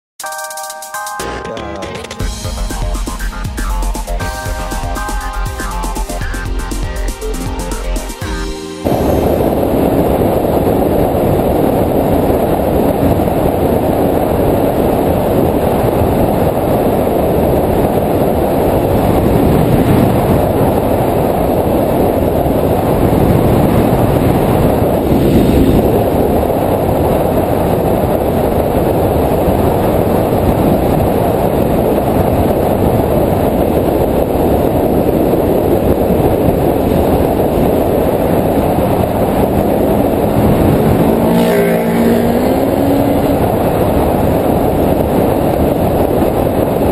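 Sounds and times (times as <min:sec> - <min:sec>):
road noise: 0:01.7 - 0:46.9
wind buffeting: 0:08.8 - 0:46.9
motorcycle engine running: 0:08.9 - 0:31.2, 0:36.1 - 0:46.8.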